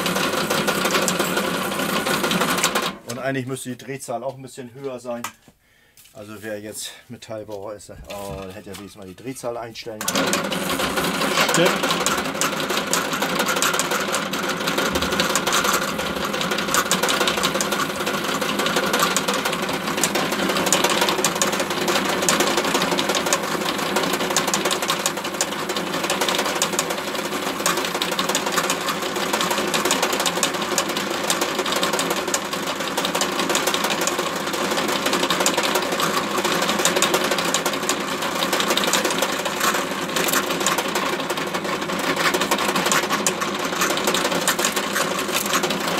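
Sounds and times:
drill press drilling: 0.0 - 3.0, 10.0 - 45.9.

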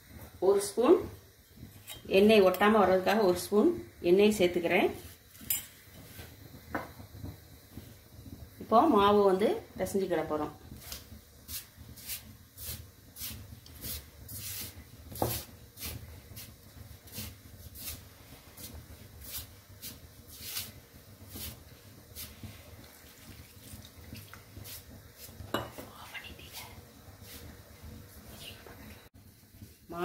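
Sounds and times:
hands mixing dough: 10.6 - 30.0.

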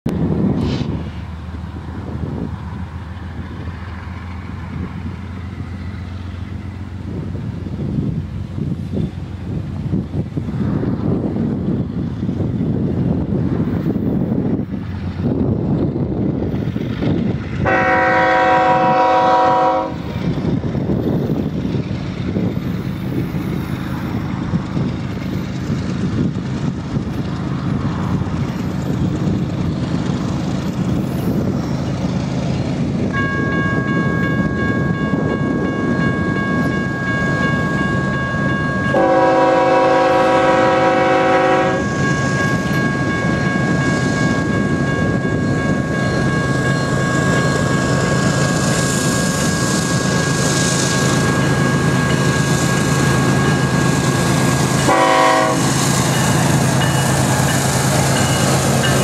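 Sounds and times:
train rumbling: 0.1 - 59.0
locomotive air horn blasts: 17.6 - 20.1, 38.8 - 42.6, 54.8 - 55.8.

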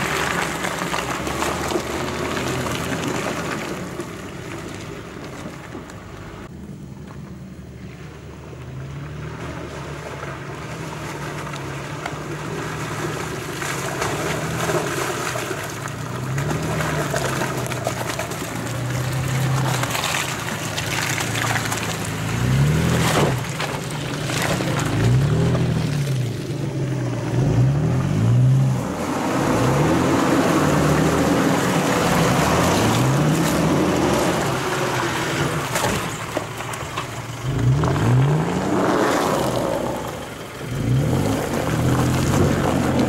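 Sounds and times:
mud and water churning: 9.1 - 43.0
engine revving: 24.1 - 36.0, 37.4 - 43.0.

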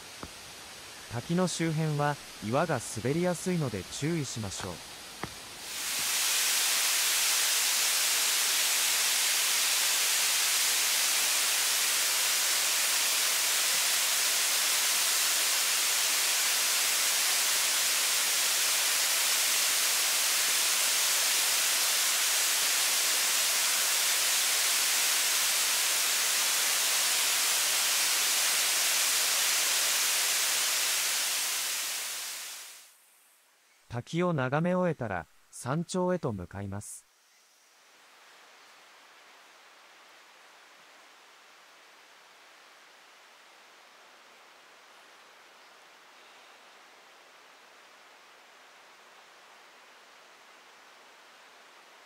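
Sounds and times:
waterfall hissing: 0.0 - 33.0.

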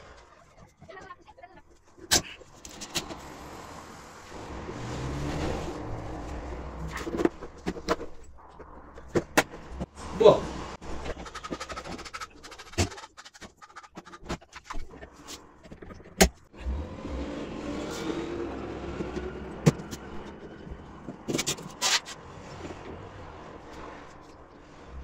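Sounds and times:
plastic covers and tools clicking: 11.0 - 16.5.

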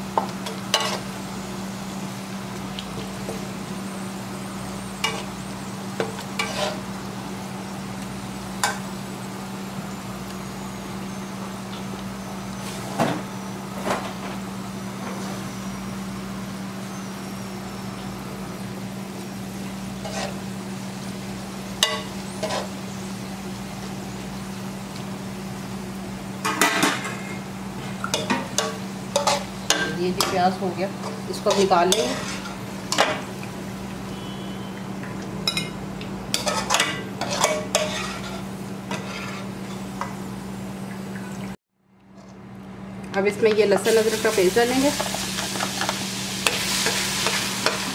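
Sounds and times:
onions sizzling in oil: 0.0 - 13.7, 14.4 - 41.5, 43.7 - 47.9
metal spatula scraping pan: 6.1 - 6.8, 31.1 - 32.6, 36.4 - 39.8.

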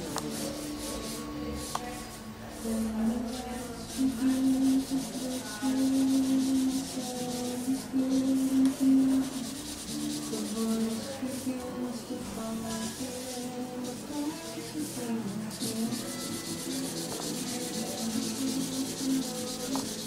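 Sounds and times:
background music low notes: 0.0 - 20.0
marker scrubbing on paper: 0.0 - 20.0.

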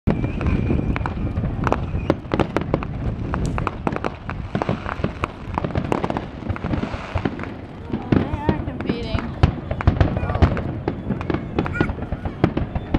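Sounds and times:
thin whistle: 0.1 - 2.3
fireworks crackling and popping: 0.1 - 12.9.

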